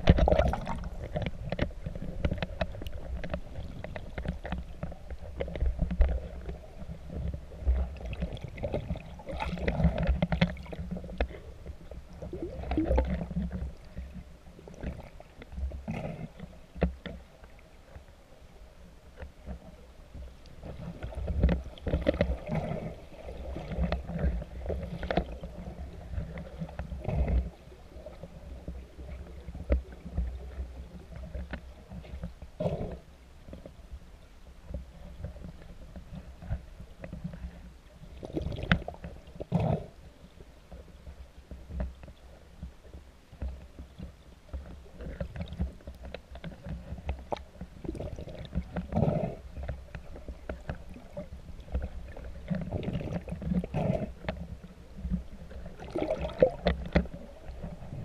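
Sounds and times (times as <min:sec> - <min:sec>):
underwater rumble and gurgling: 0:00.0 - 0:58.0
regulator bubbles: 0:55.8 - 0:56.7.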